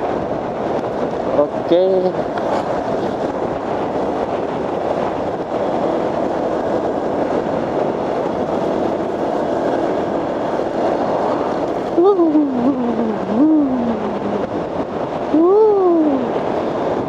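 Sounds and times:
motorcycle engine: 0.0 - 17.0
wind rushing: 0.0 - 17.0.

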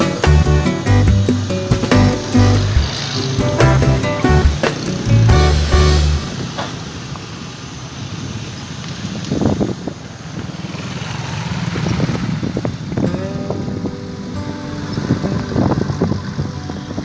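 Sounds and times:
vehicle engines and traffic: 0.0 - 17.0
wind buffeting microphone: 9.0 - 10.6, 11.4 - 17.0.

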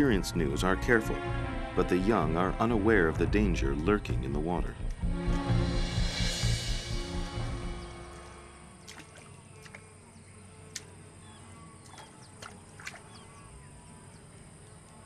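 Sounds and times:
animal lapping water: 8.8 - 9.9, 11.8 - 13.3
small sharp splashy clicks: 8.9 - 9.9, 10.7 - 10.9, 11.8 - 13.1.

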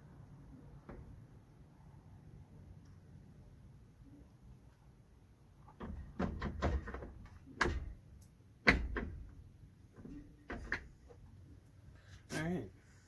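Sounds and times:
hard plastic clunks and scrapes: 8.7 - 11.2.

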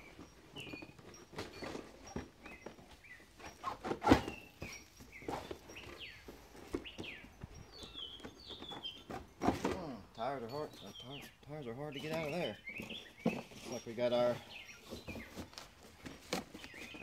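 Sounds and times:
cardboard boxes rustling: 0.0 - 17.0
bird singing chirping phrases: 4.2 - 17.0.

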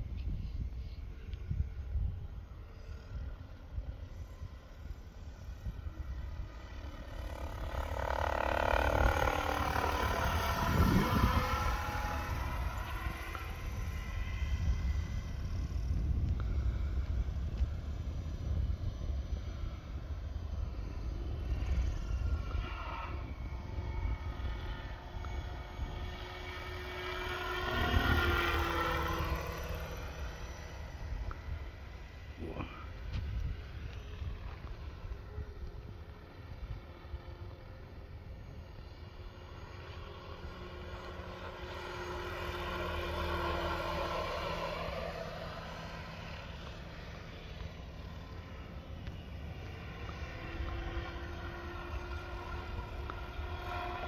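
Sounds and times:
wind rumble on microphone: 0.0 - 8.0, 8.8 - 41.4
helicopter motor and rotor whine: 0.0 - 54.0.

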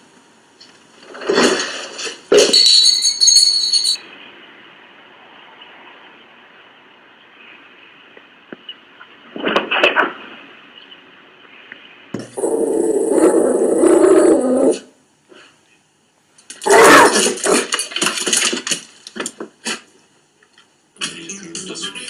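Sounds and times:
dog growling: 12.4 - 14.9
dog barking: 16.7 - 17.6.

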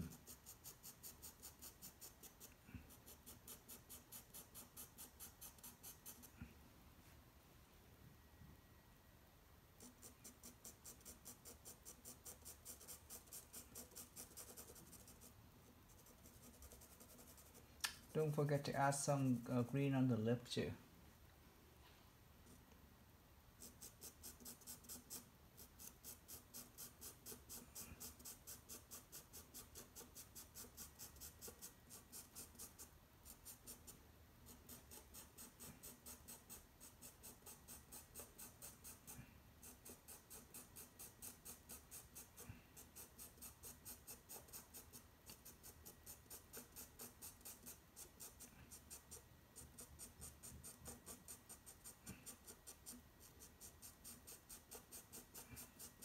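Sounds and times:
coloured pencil scratching on paper: 0.0 - 6.4, 9.8 - 19.4, 23.6 - 56.0.

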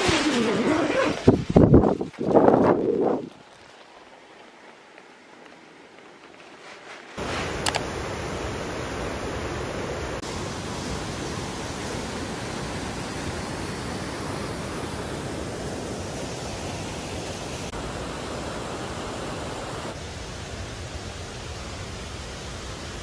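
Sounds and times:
river water rushing over rocks: 7.2 - 23.0.

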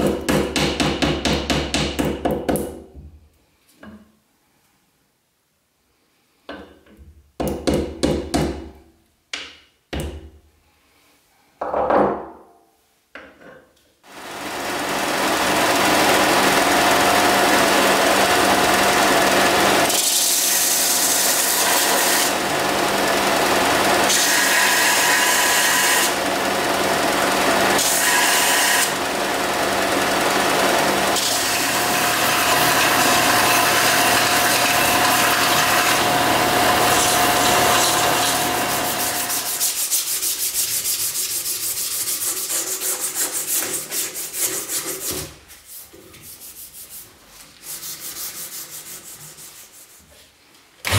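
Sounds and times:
belt sander motor hum: 14.1 - 39.8
rhythmic hand sanding: 31.2 - 50.0.

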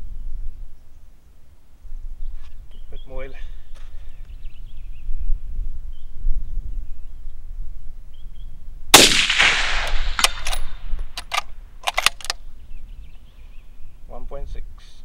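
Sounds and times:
suppressed rifle shot with echo: 8.9 - 12.4
rifle bolt clicking and clacking: 9.0 - 12.4.

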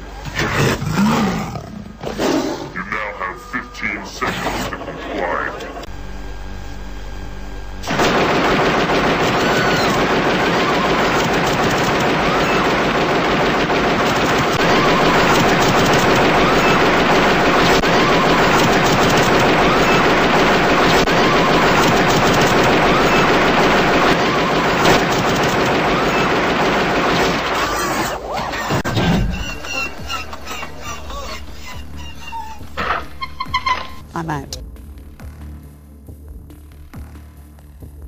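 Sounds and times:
heavy automatic gunfire: 7.8 - 28.1.

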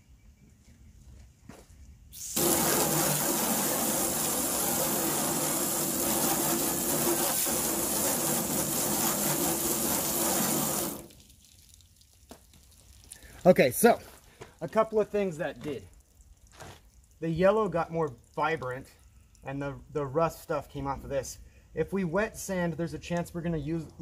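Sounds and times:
pressure washer spraying: 2.2 - 11.2.

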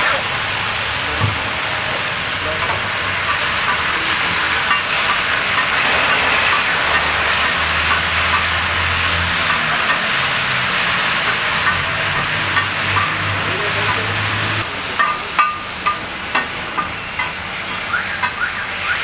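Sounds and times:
food sizzling on a griddle: 0.0 - 19.0
metal spatula scraping griddle: 3.2 - 13.2.

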